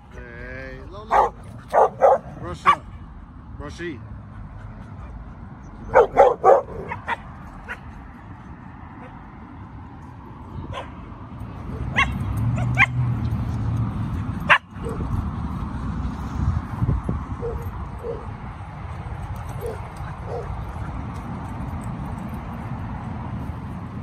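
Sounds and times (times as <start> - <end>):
dogs barking and yipping: 1.0 - 3.0, 4.2 - 9.4, 10.7 - 15.6, 17.1 - 23.0.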